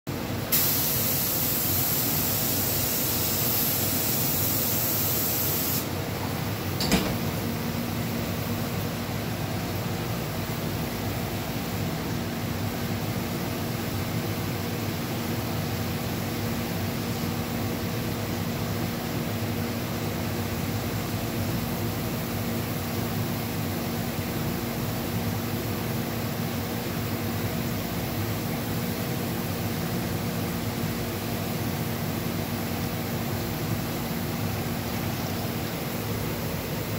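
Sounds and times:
shop equipment rushing hiss: 0.4s - 6.0s.

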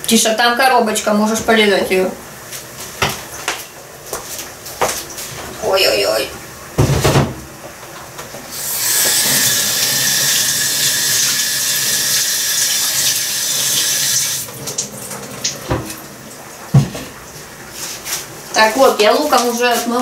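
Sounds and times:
tap water running into sink: 6.8s - 17.5s.

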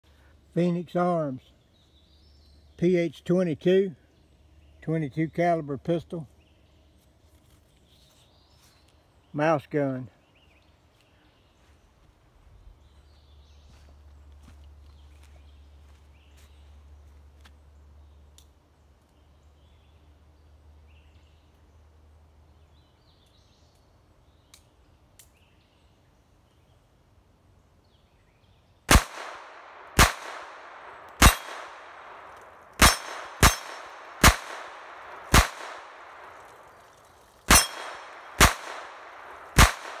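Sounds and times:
pistol shots: 28.9s - 36.6s, 37.5s - 40.0s.

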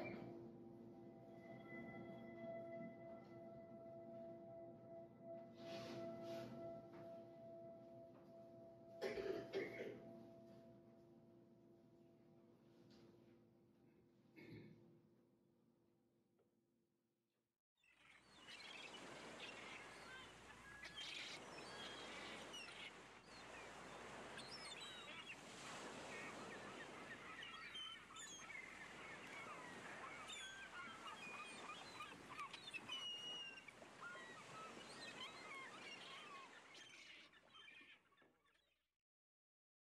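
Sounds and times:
birds chirping and squawking: 17.8s - 38.7s.

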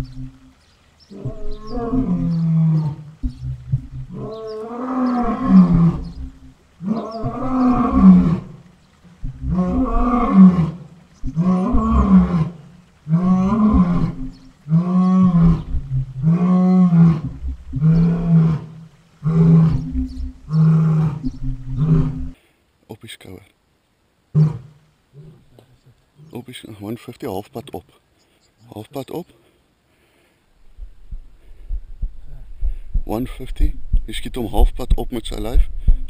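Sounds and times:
lion roaring: 1.1s - 22.4s.

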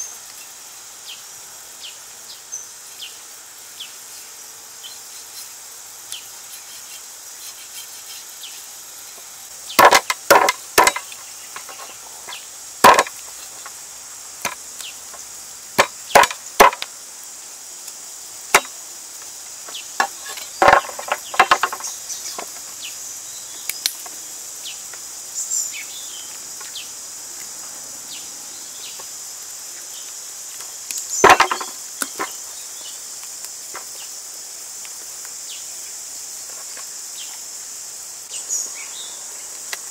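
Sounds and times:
high insect drone: 0.0s - 39.9s
cleaver chopping on wooden board: 9.8s - 11.8s, 12.8s - 13.1s, 15.8s - 16.9s, 31.2s - 32.3s.

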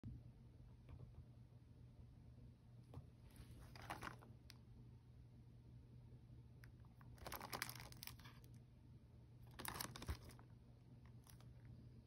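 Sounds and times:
plastic wrap crinkling: 7.1s - 8.5s, 9.5s - 10.5s.

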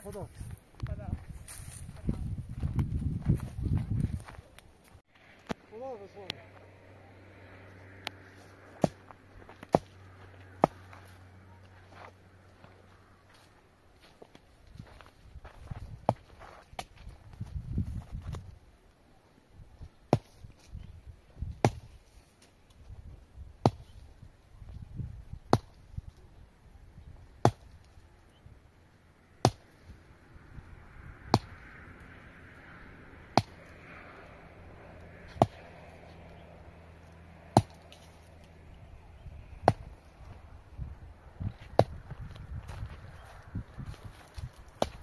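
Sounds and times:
chopping strikes: 8.8s - 10.0s, 10.6s - 10.9s, 21.6s - 21.9s, 29.4s - 29.7s, 31.3s - 31.6s, 33.3s - 33.7s, 35.3s - 35.7s, 37.5s - 38.0s, 39.6s - 40.0s.

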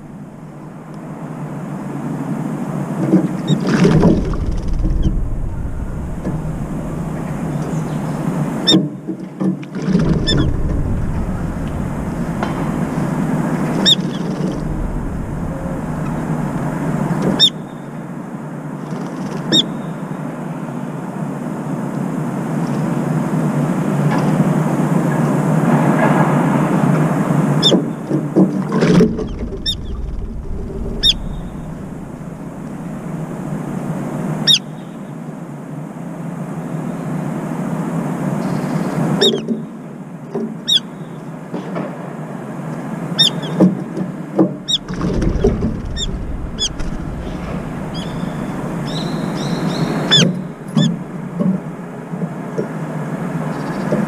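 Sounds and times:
rumble of urban traffic: 0.0s - 54.0s
high-pitched bird calls: 30.8s - 32.0s, 46.0s - 51.1s.

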